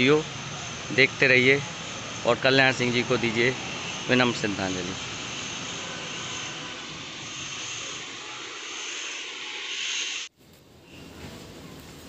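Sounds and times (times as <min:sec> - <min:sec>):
outdoor background hiss: 0:00.0 - 0:12.0
quiet outdoor ambience: 0:00.0 - 0:12.0.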